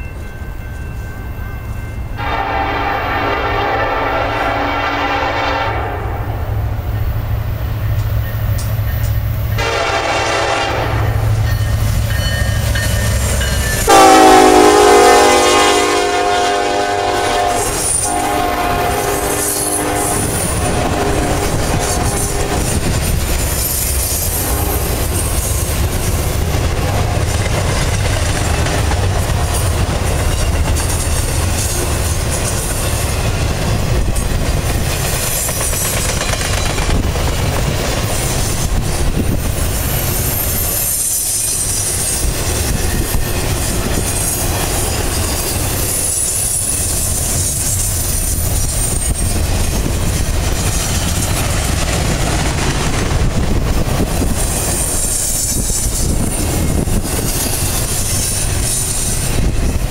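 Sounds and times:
freight train rolling past: 0:00.0 - 0:59.9
locomotive air horn: 0:02.2 - 0:06.4, 0:09.6 - 0:11.4, 0:13.9 - 0:22.8, 0:24.3 - 0:25.2
wheels clattering on rail: 0:17.6 - 0:59.9.

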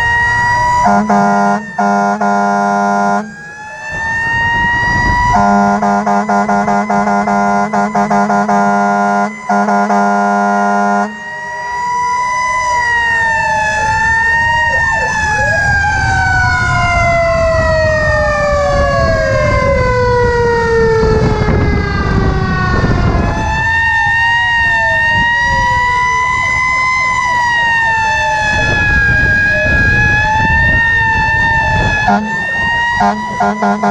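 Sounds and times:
fire truck air horn blasts: 0:00.0 - 0:12.9, 0:28.4 - 0:33.9
fire truck sirens wailing: 0:00.0 - 0:33.9.

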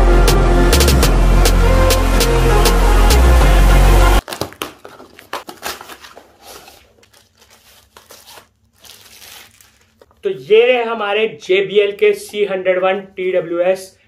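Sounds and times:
intro music with heavy beat: 0:00.0 - 0:04.2
plastic bag crinkling: 0:04.2 - 0:10.3.

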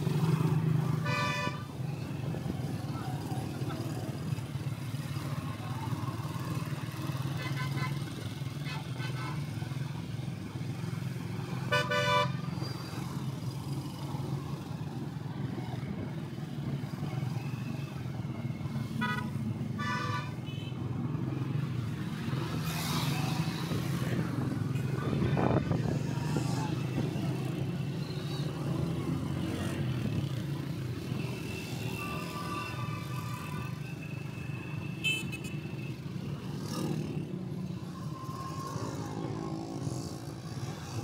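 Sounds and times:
vehicle horns honking: 0:01.0 - 0:01.6, 0:11.7 - 0:12.4, 0:19.0 - 0:20.8, 0:35.0 - 0:35.6.

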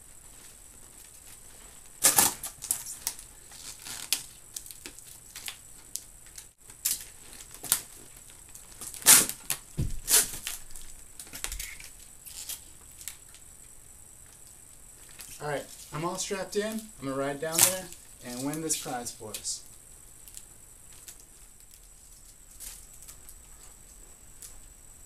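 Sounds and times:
boots knocking on laptops: 0:09.8 - 0:10.1.

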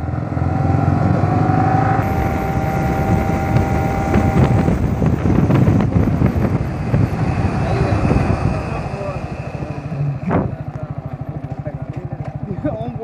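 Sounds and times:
wind rushing over microphone: 0:00.9 - 0:10.7
motorcycle engine running: 0:02.0 - 0:13.0.

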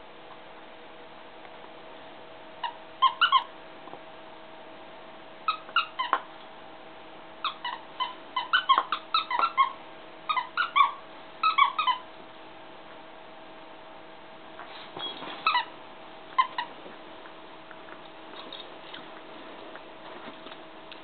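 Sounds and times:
squeaky toy squeaking: 0:02.6 - 0:03.5, 0:05.5 - 0:06.2, 0:07.4 - 0:12.0, 0:15.4 - 0:15.7, 0:16.4 - 0:16.7.

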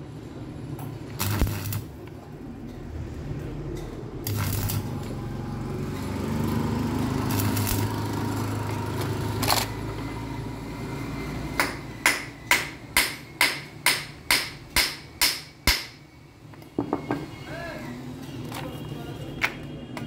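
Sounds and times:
welder hum: 0:01.0 - 0:02.0, 0:04.2 - 0:11.6
welding arc crackling: 0:01.0 - 0:02.1, 0:04.2 - 0:09.9
hammer striking metal: 0:11.6 - 0:16.0.

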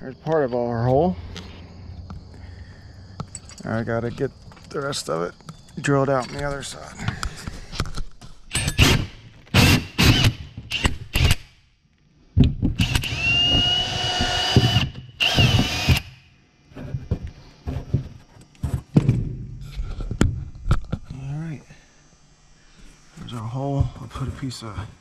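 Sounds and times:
power drill whining: 0:08.7 - 0:11.4, 0:12.8 - 0:16.2.

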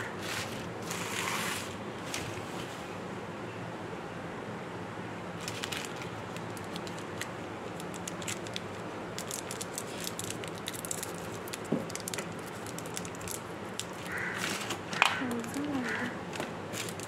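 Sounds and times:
plastic candy wrapper crinkling: 0:05.4 - 0:17.0.

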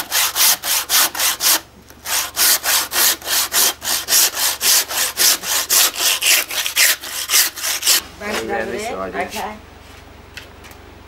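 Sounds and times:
hand saw rasping through bone: 0:00.0 - 0:08.0.

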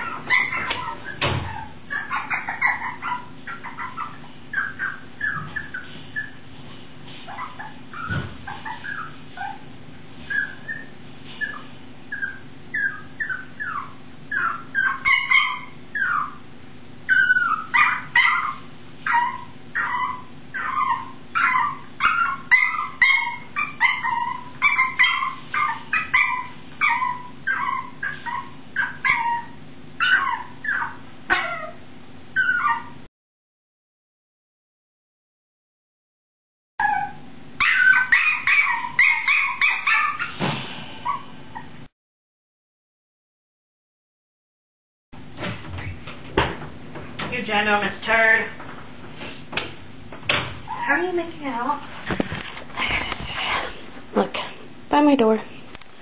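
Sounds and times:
puppy whining and yelping: 0:00.0 - 0:06.5, 0:07.2 - 0:33.1, 0:36.8 - 0:40.4, 0:41.0 - 0:41.9.

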